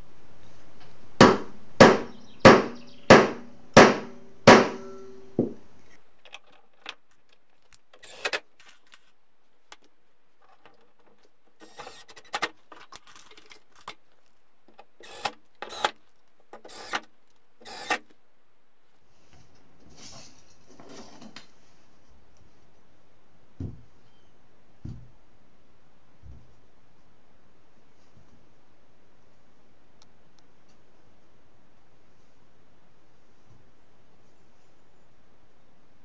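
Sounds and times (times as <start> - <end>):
cordless driver running screws: 6.2 - 9.1, 9.7 - 18.2.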